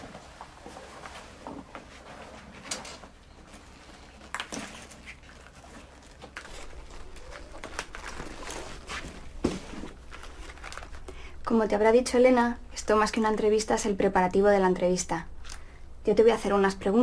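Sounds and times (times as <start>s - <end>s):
handbag rummaging rustles and clicks: 0.1s - 11.1s.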